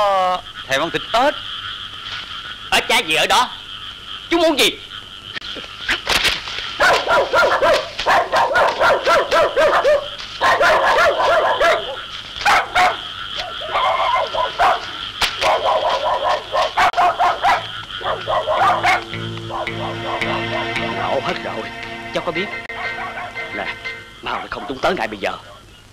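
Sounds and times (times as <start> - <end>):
dogs barking and yelping: 6.7 - 21.2, 22.6 - 25.7
music: 18.6 - 24.6.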